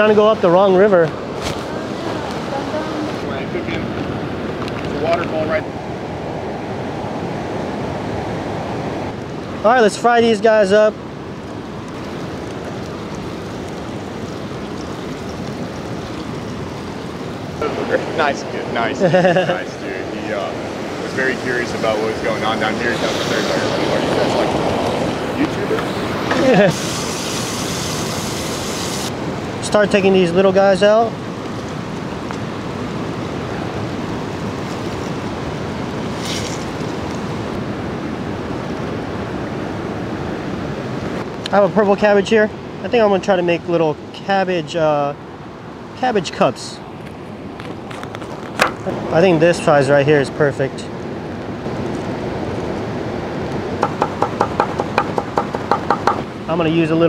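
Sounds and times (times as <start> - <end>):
river rapids rushing: 12.0 - 31.3
fish sizzling in hot oil: 26.6 - 29.1.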